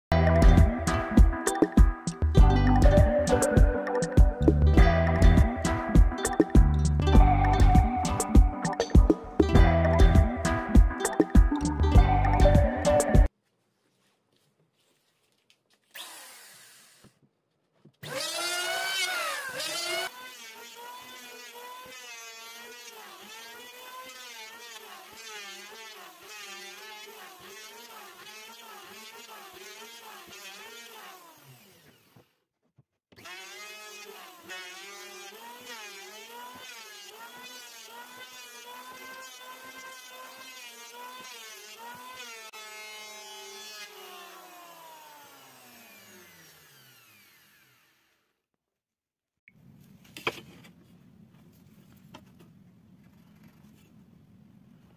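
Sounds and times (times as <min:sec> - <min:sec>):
electric hand planer cutting wood: 0:00.1 - 0:13.2, 0:18.0 - 0:32.3, 0:33.1 - 0:48.3.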